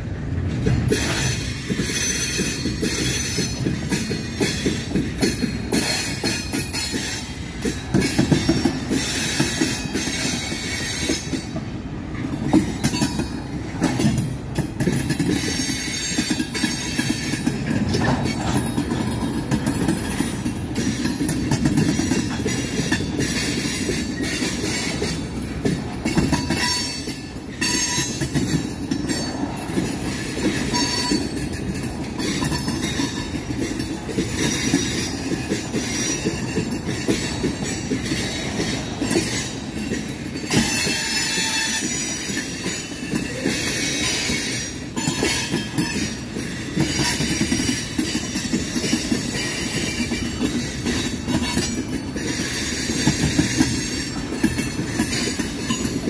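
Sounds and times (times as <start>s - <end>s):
train wheels rumbling on rails: 0.0s - 56.0s
high wheel squeal: 0.9s - 4.8s, 32.2s - 56.0s.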